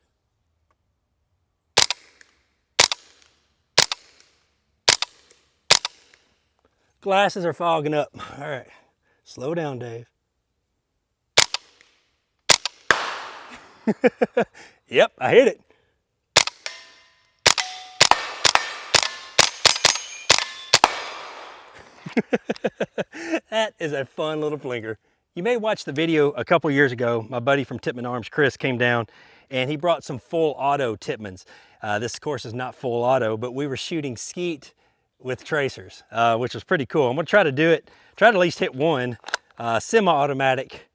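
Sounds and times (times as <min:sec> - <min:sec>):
suppressed pistol shots with echo: 0:01.8 - 0:04.3, 0:04.9 - 0:06.2, 0:11.4 - 0:11.9, 0:12.5 - 0:13.6, 0:16.4 - 0:21.8
steel targets ringing: 0:19.8 - 0:20.9.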